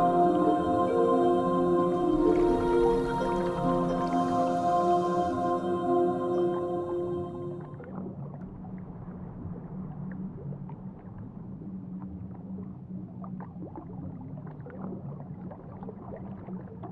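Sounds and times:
underwater low rumble: 7.4 - 16.9.

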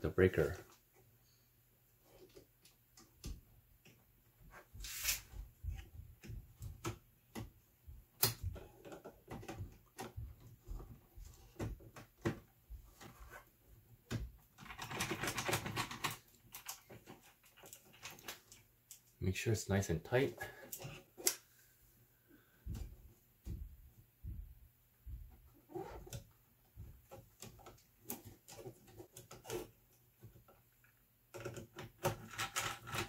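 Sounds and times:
scratching and rustling: 4.4 - 6.5.

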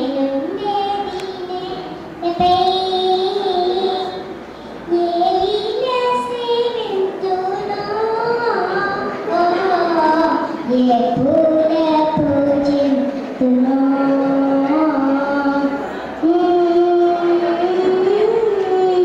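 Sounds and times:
girl singing into a microphone: 0.0 - 19.0.

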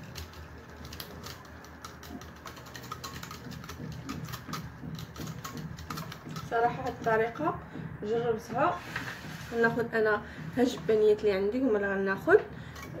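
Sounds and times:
utensil ticking against glass bowl: 0.0 - 7.2.

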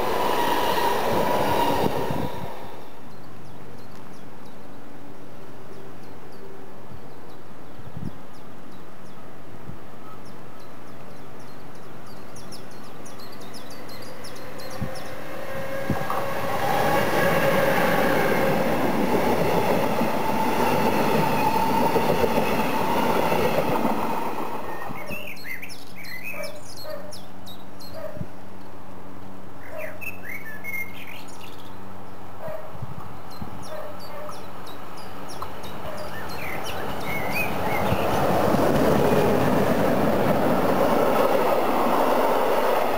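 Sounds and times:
electric train passing: 0.0 - 3.1, 12.9 - 25.4, 34.4 - 42.9
electric locomotive with freight train: 0.0 - 26.3, 28.4 - 42.9
birds chirping: 10.0 - 28.8, 29.6 - 42.9.

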